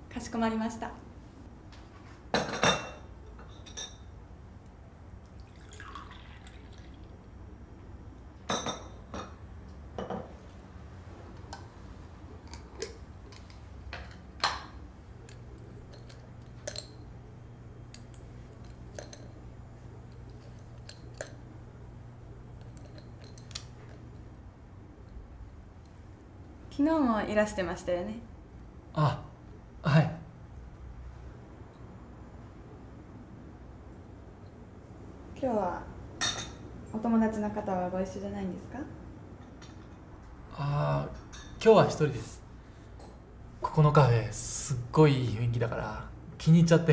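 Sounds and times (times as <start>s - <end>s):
steady low hum: 0.0s - 46.9s
liquid pouring: 5.2s - 7.3s
cup and saucer clinking: 17.9s - 19.4s.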